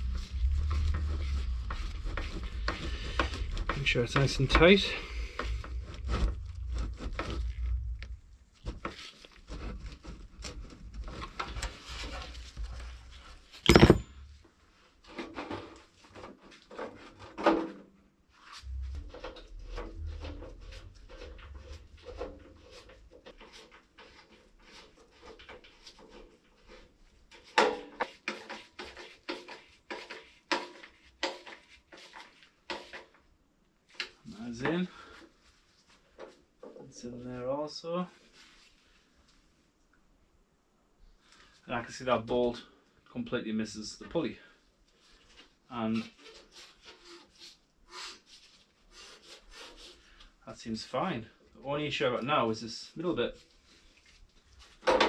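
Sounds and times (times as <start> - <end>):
parts clicking and rattling: 13.6 - 14.2
sharp knock: 13.7 - 14.1.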